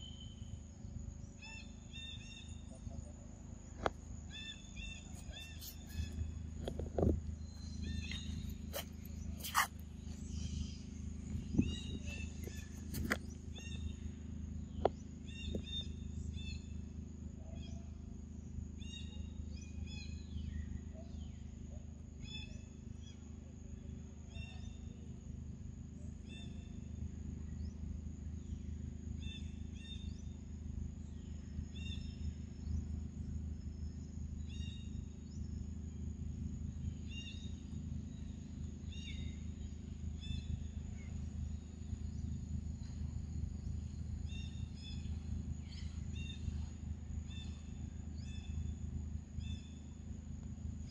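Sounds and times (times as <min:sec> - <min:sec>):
steady low hum: 0:00.0 - 0:50.9
bird chirping: 0:04.3 - 0:06.4, 0:07.0 - 0:14.0.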